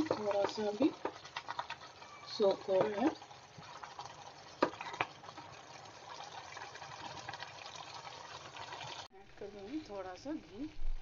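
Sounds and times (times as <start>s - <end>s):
spoon stirring thick food: 0.0s - 7.4s.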